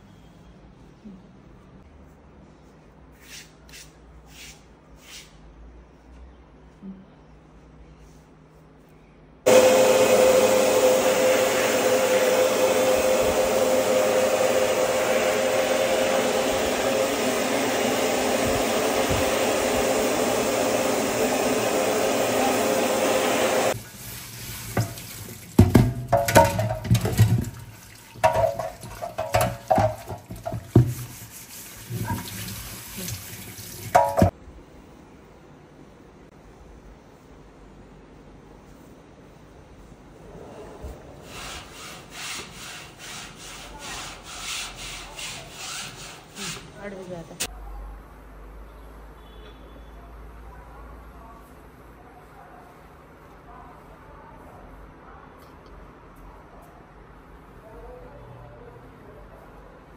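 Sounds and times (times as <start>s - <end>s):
tap water running into sink: 23.8s - 34.3s
knocks and clatter at sink: 24.7s - 31.1s, 33.8s - 34.3s.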